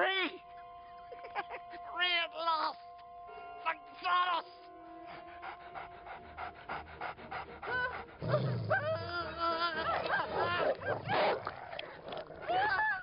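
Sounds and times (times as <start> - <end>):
man howling and yelping: 0.0 - 0.4, 5.2 - 11.1, 12.4 - 13.0.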